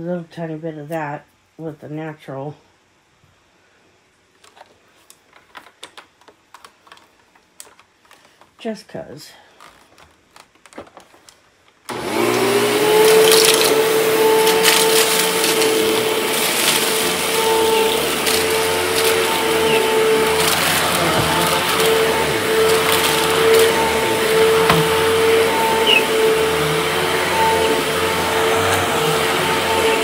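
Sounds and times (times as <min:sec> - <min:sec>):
grains rattling through vacuum: 0:11.9 - 0:30.0
vacuum cleaner motor whine: 0:11.9 - 0:30.0.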